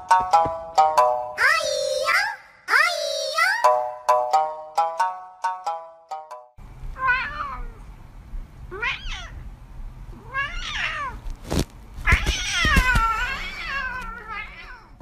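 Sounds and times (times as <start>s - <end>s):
cat meowing: 7.0s - 7.8s, 8.7s - 9.4s, 10.1s - 11.2s, 12.0s - 15.0s.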